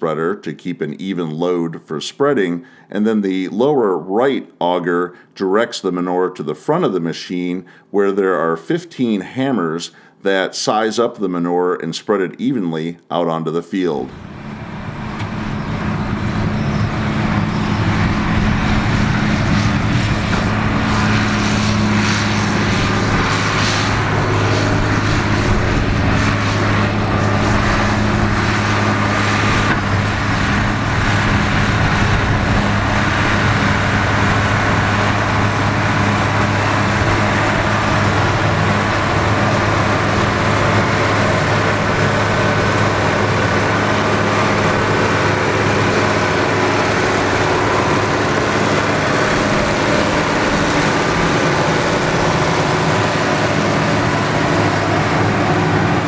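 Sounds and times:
tractor diesel engine running: 14.1 - 56.0.

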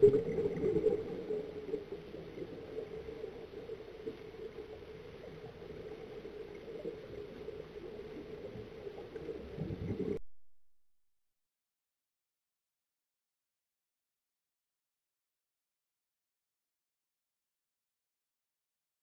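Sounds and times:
scuba regulator bubbling: 0.0 - 3.4, 9.1 - 10.2.

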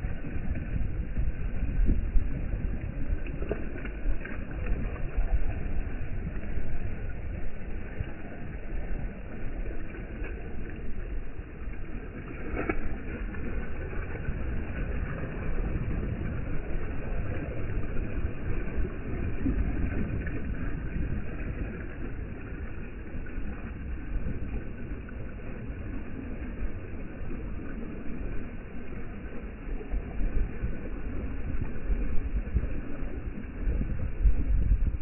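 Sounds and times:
wind buffeting microphone: 0.0 - 8.4, 29.0 - 35.0.

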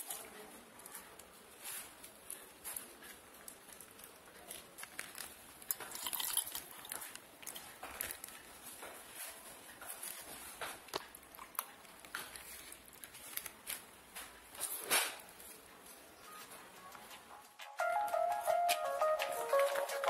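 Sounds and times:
plastic bag crinkling: 0.0 - 15.6.

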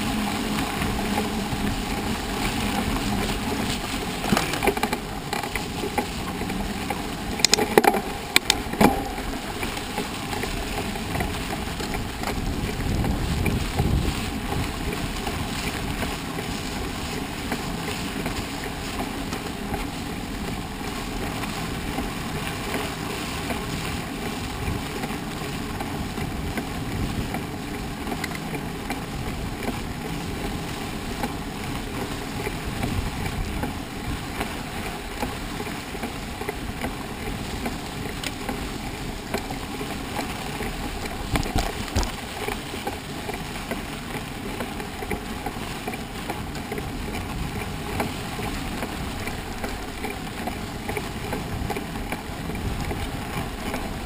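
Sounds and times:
bike rattling: 0.0 - 54.0
mountain bike riding over trail: 0.0 - 54.0.

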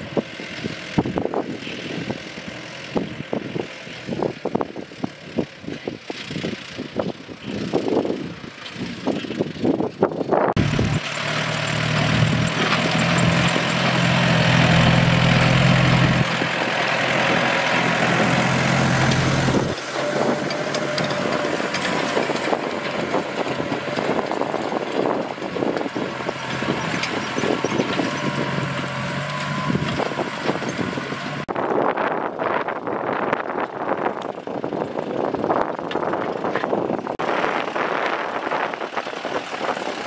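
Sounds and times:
tractor diesel engine running: 0.0 - 40.0
knocks and rattles: 10.6 - 16.6, 17.2 - 31.1.

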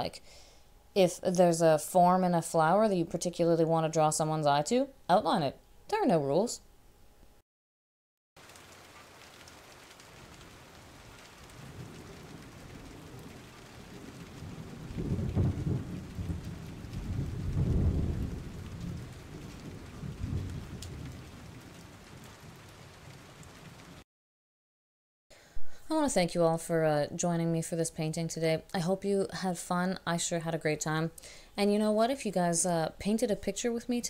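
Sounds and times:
steady rain: 8.4 - 24.0
low rolling thunder: 10.1 - 24.0.

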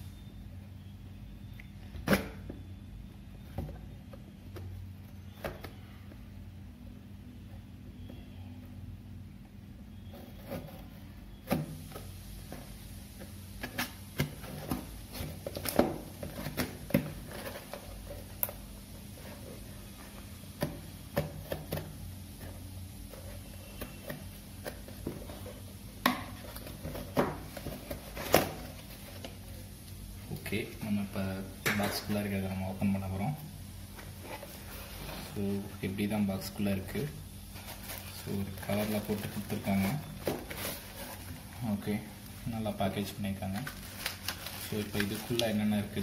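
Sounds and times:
cardboard rustling and tapping: 10.2 - 18.6, 19.2 - 29.4, 37.6 - 41.4.

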